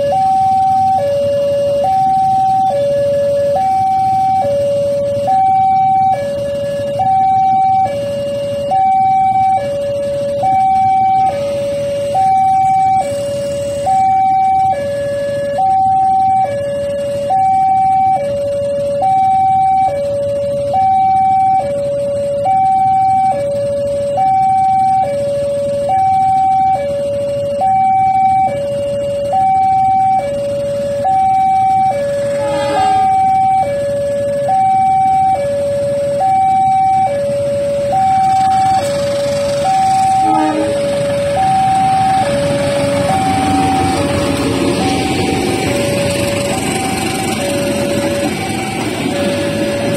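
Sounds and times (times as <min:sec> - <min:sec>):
level crossing two-tone alarm: 0:00.0 - 0:49.9.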